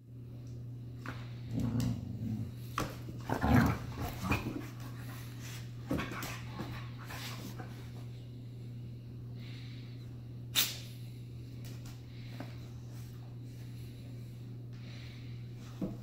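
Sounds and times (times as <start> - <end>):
dogs growling: 1.4 - 4.8.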